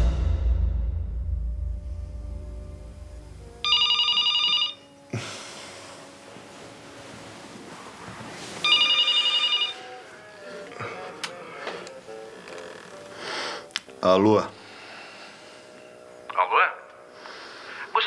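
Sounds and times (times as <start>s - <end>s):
telephone ringing: 3.6s - 5.0s, 8.6s - 10.7s.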